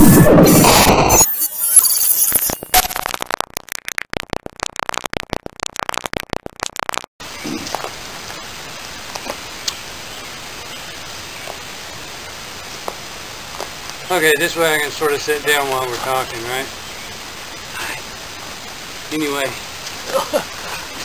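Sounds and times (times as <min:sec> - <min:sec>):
electronic glitch stutter: 0:00.0 - 0:07.8
outdoor background hiss: 0:07.2 - 0:21.0.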